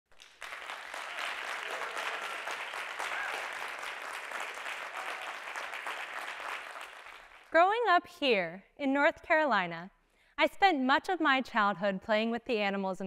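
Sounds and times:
audience applauding: 0.1s - 7.5s.

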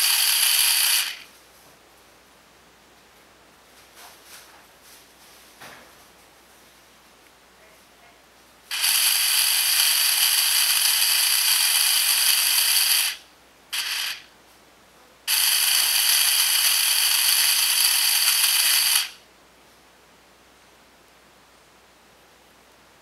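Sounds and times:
power drill whirring: 0.0s - 1.3s, 8.7s - 13.2s, 13.8s - 14.3s, 15.3s - 19.2s.

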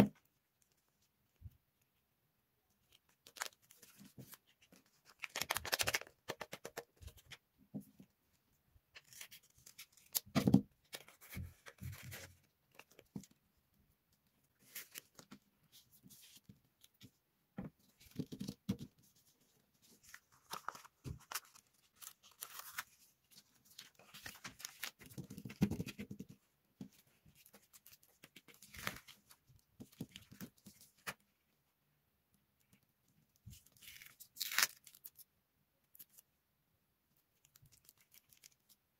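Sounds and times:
paper rustling and crinkling: 3.0s - 7.3s, 17.9s - 31.2s.

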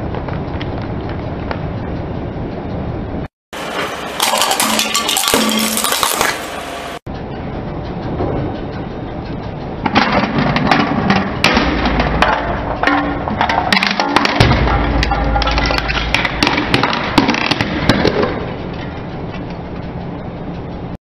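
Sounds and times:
plastic cups cracking and snapping: 4.2s - 6.4s.

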